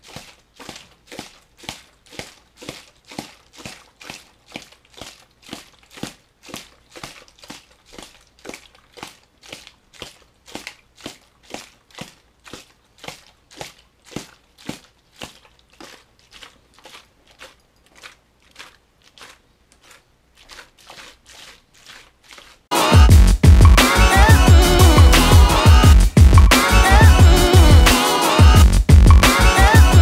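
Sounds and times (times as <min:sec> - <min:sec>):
plastic bottle crinkling: 0:00.0 - 0:22.7.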